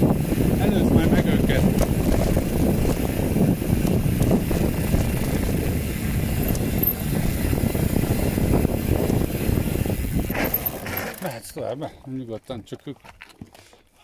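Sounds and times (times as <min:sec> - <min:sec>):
mountain bike rumbling downhill: 0:00.0 - 0:12.1
bike knocks and rattles: 0:00.3 - 0:11.3.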